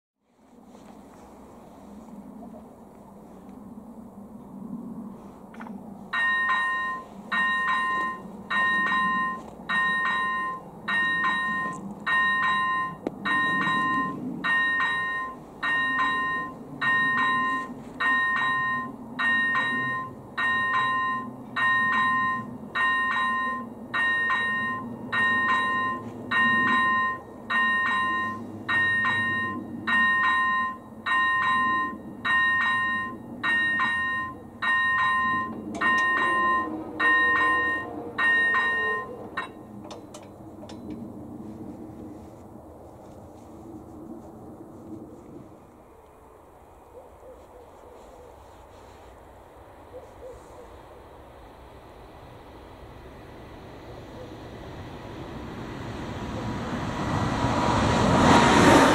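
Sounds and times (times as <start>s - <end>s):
level crossing bell chiming: 6.2s - 39.6s.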